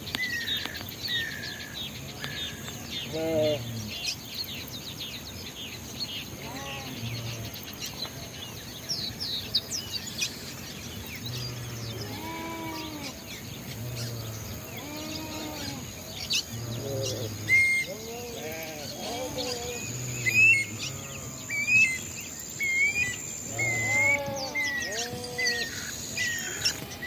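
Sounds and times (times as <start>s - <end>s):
lower arched bird call: 11.2s - 27.0s.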